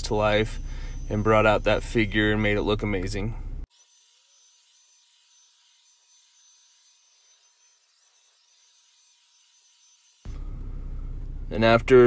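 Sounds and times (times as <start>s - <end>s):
thin steady whine: 0.0s - 3.7s, 9.3s - 12.0s
spray gun hissing: 0.2s - 1.7s.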